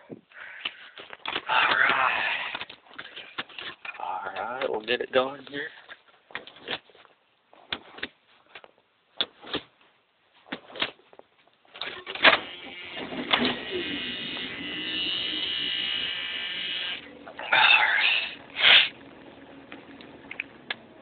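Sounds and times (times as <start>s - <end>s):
car engine running: 17.0s - 21.0s.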